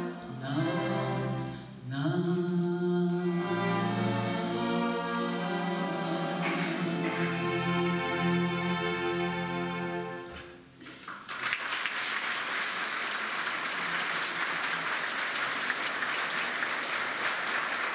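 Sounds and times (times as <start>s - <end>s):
string orchestra chord: 3.2s - 10.6s
audience applause: 10.8s - 17.9s.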